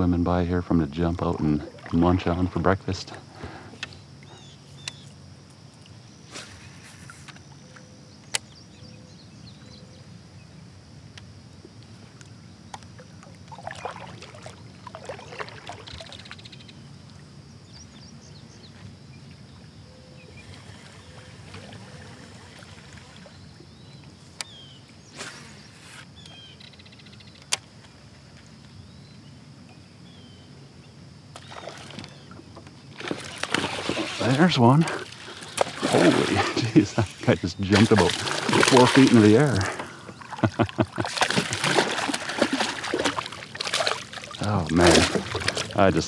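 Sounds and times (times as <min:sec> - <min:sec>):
low background hum: 0:00.0 - 0:46.0
water trickling off paddle: 0:12.7 - 0:16.6, 0:31.4 - 0:46.0
kayak paddle swishing through water: 0:13.0 - 0:16.4, 0:31.4 - 0:46.0.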